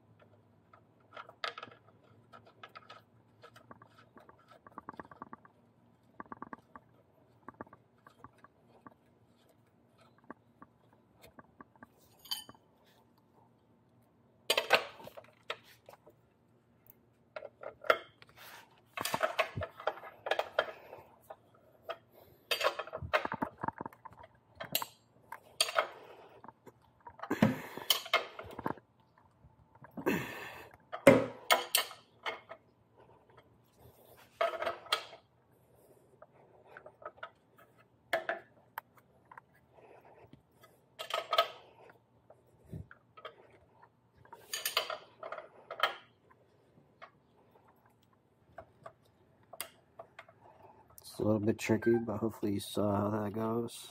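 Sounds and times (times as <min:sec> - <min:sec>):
metal tools clinking and clattering: 0:12.1 - 0:12.7.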